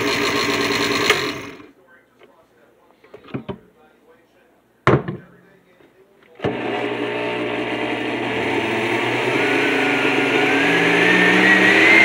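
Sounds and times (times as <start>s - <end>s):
blender motor whine rising: 0.0s - 1.7s, 6.4s - 12.0s.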